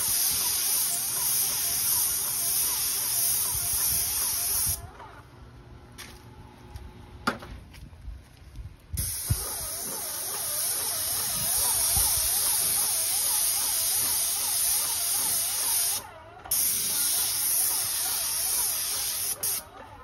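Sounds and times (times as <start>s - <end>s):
paint spray gun hissing: 0.0s - 4.8s, 9.0s - 19.6s.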